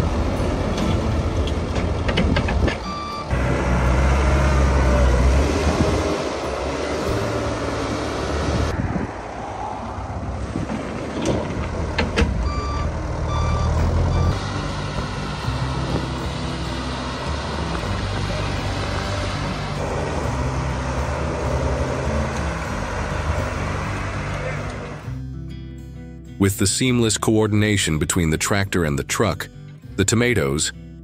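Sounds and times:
wheel loader engine running: 0:00.0 - 0:08.7, 0:10.4 - 0:25.1
reversing alarm beeps: 0:02.8 - 0:03.3, 0:12.4 - 0:14.4.

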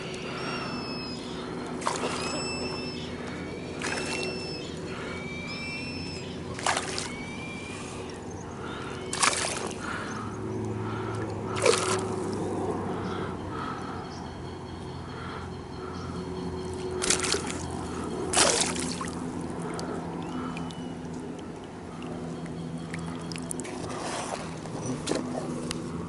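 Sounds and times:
water sloshing: 0:00.0 - 0:12.5, 0:16.7 - 0:26.0
fish splashing: 0:00.4 - 0:04.6, 0:06.4 - 0:08.1, 0:08.7 - 0:10.2, 0:11.0 - 0:12.4, 0:17.0 - 0:22.2, 0:22.8 - 0:25.6.

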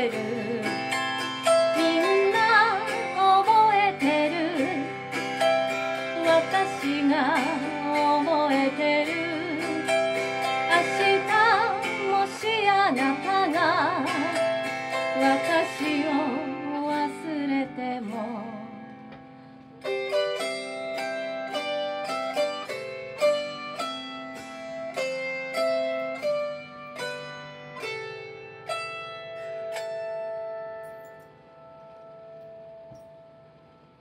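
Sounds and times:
woman singing: 0:00.0 - 0:00.9, 0:01.6 - 0:05.0, 0:06.0 - 0:19.0
autoharp strummed chords: 0:00.0 - 0:34.0.

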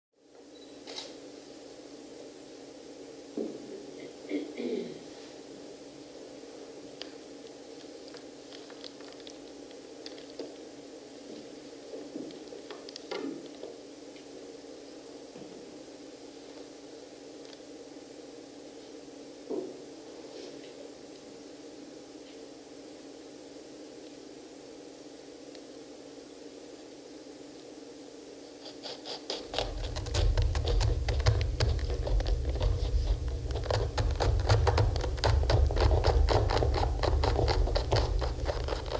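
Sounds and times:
steady low hum: 0:00.2 - 0:38.9
low rumble: 0:29.6 - 0:38.9.

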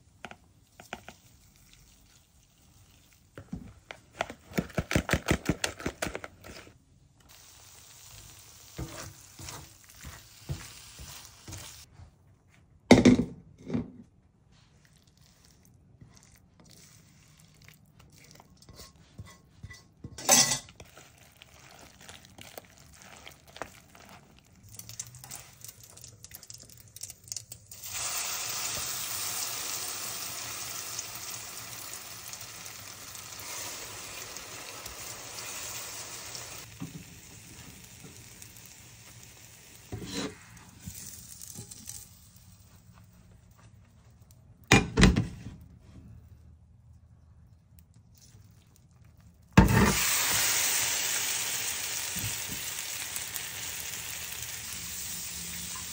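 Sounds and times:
spoon stirring in plastic bowl: 0:00.2 - 0:01.4, 0:14.9 - 0:24.6
food sizzling in frying pan: 0:07.3 - 0:11.9, 0:27.8 - 0:42.2, 0:49.6 - 0:55.9
cookware clattering: 0:18.7 - 0:20.8.

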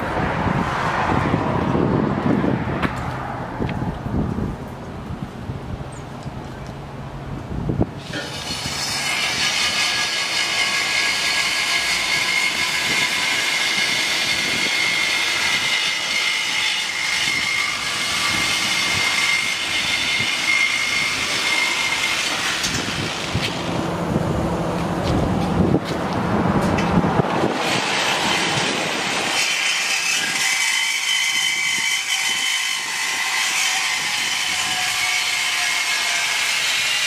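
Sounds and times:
air-powered cutting tool whining: 0:08.0 - 0:23.8, 0:27.4 - 0:37.0.

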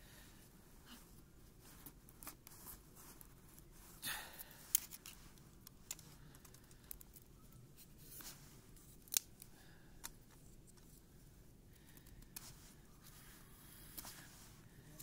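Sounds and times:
low steady background noise: 0:00.0 - 0:15.0
sharp clicks and snaps: 0:09.0 - 0:10.2.

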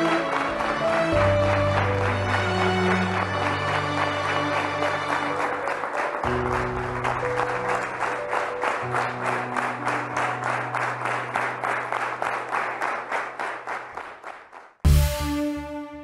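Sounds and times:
slow background music: 0:00.0 - 0:12.8
audience applauding: 0:00.0 - 0:14.8.

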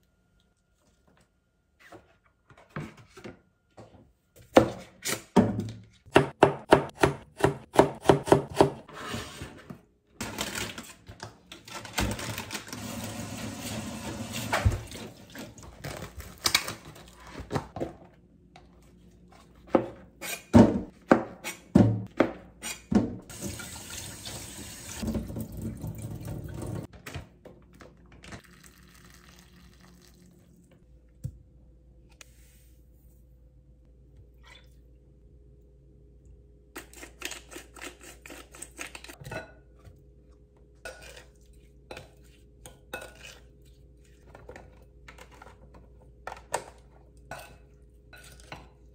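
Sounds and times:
knife chopping on cutting board: 0:06.1 - 0:08.8.

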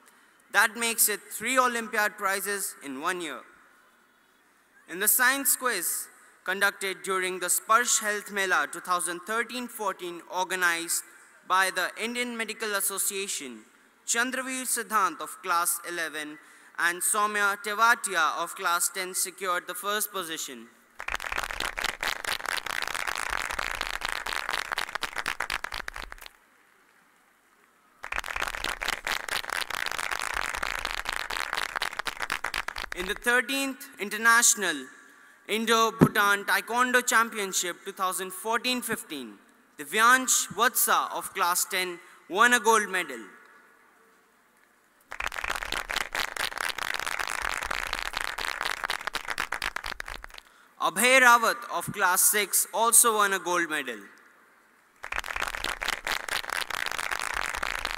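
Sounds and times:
audience applauding: 0:21.0 - 0:26.3, 0:28.0 - 0:33.0, 0:45.1 - 0:50.5, 0:55.0 - 0:57.9.

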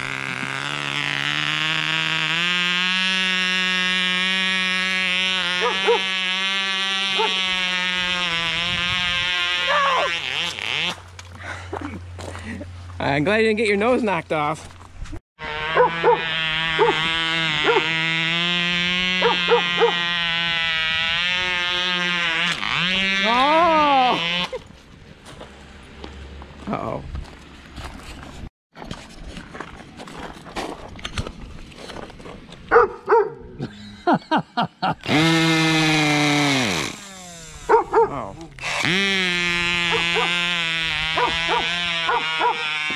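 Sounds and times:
model engine popping and buzzing: 0:00.0 - 0:11.3, 0:15.5 - 0:24.6, 0:35.0 - 0:37.9, 0:38.5 - 0:42.9
dog barking: 0:05.6 - 0:06.0, 0:15.8 - 0:16.2, 0:32.7 - 0:33.5, 0:37.7 - 0:38.2, 0:39.9 - 0:40.3, 0:41.2 - 0:42.6.

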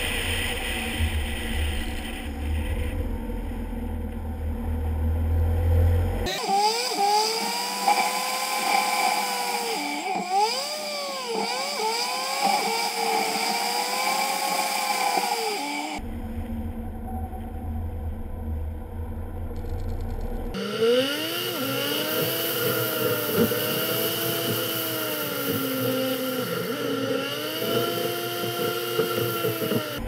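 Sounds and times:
road and wind rumble: 0:00.0 - 0:06.3
high engine whine: 0:00.0 - 0:30.0.

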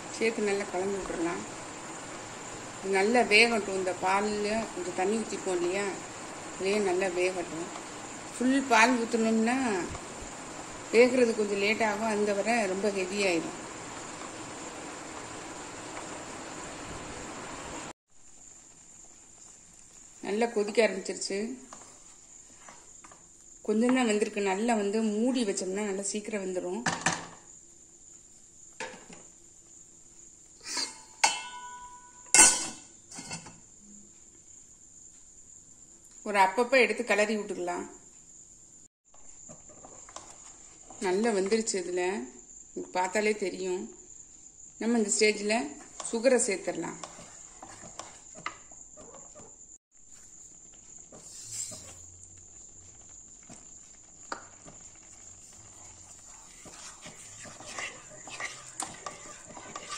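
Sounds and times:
wooden spoon stirring in a pan: 0:00.0 - 0:25.3, 0:39.1 - 0:41.8, 0:44.2 - 0:59.9
metal lid clanking on pan: 0:30.8 - 0:33.6.

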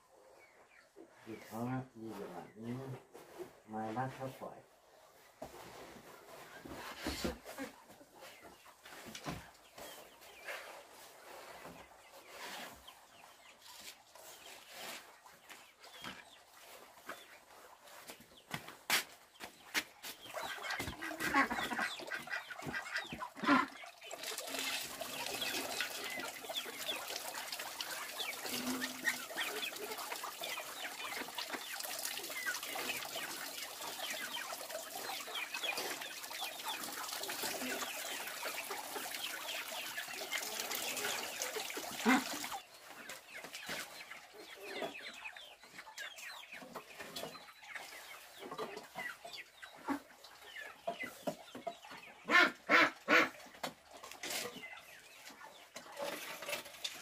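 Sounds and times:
chickens clucking: 0:00.0 - 0:57.0
water splashing from hose: 0:20.1 - 0:42.7.

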